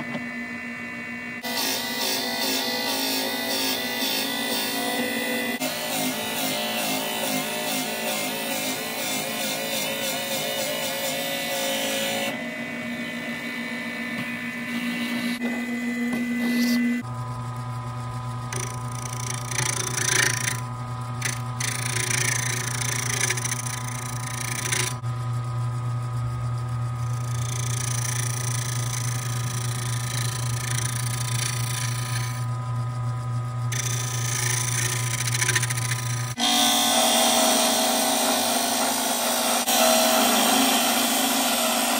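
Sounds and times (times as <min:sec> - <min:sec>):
wood lathe humming: 0:01.4 - 0:41.9
gouge cutting spinning wood: 0:18.3 - 0:25.4, 0:26.1 - 0:41.9
drill boring into wood: 0:18.5 - 0:25.0, 0:27.0 - 0:32.5, 0:33.7 - 0:41.9.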